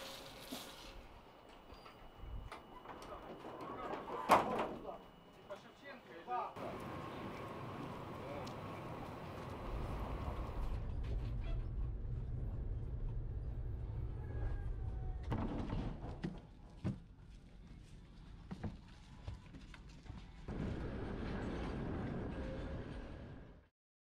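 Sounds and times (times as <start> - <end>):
tram rumbling on track: 6.5 - 15.3.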